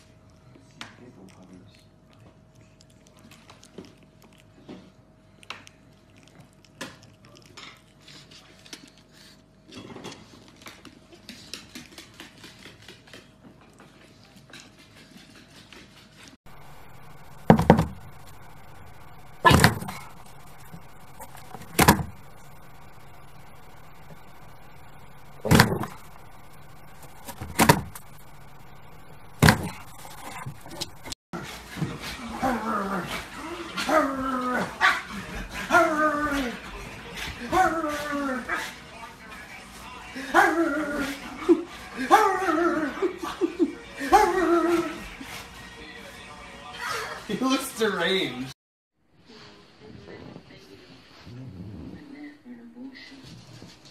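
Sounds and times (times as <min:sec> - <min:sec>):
paws clicking on wooden floor: 0:10.1 - 0:16.3
faint steady hum: 0:16.5 - 0:31.2.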